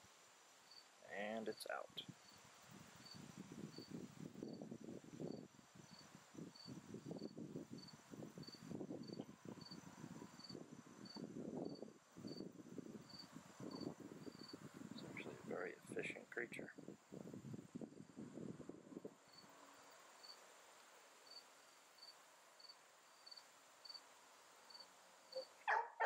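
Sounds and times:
insect chirping: 0.2s - 1.0s, 1.7s - 15.5s, 19.1s - 25.9s
wind buffeting microphone: 2.7s - 19.2s.

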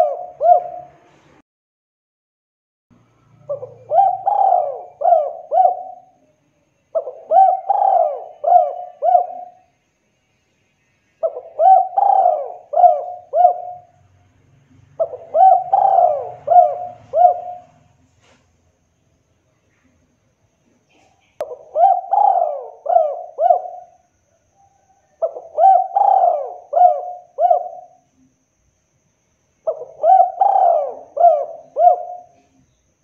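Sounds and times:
dove cooing: 0.0s - 1.1s, 3.4s - 6.2s, 6.9s - 9.7s, 11.2s - 14.0s, 14.9s - 18.0s, 20.9s - 28.0s, 29.6s - 32.8s.

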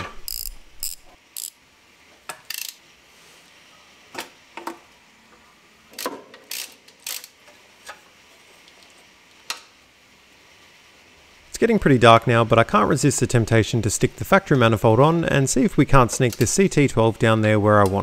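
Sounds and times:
ratcheting spanner clicking: 0.0s - 1.6s, 2.4s - 2.8s, 5.9s - 7.4s, 16.1s - 16.6s.

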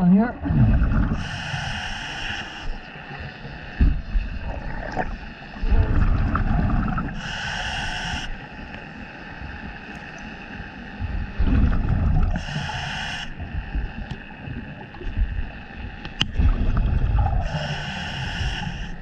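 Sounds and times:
exhaled bubbles rumbling: 0.0s - 19.0s
hissing regulator breath: 1.2s - 3.2s, 7.1s - 8.8s, 12.3s - 13.8s, 17.4s - 19.0s.

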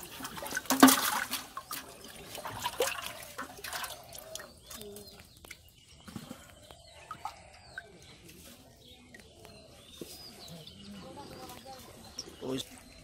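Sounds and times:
water dripping: 0.0s - 8.1s
water splashing in a clay pot: 0.0s - 9.6s.

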